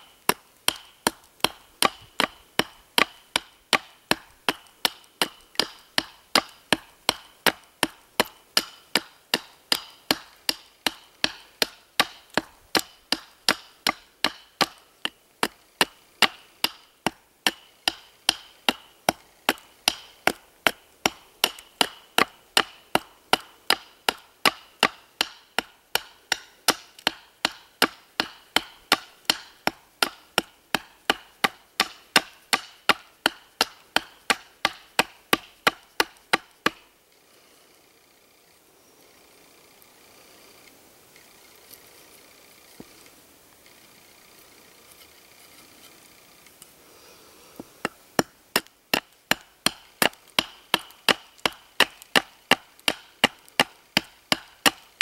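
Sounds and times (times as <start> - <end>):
knife chopping into wood: 0.1 - 16.8, 47.8 - 54.8.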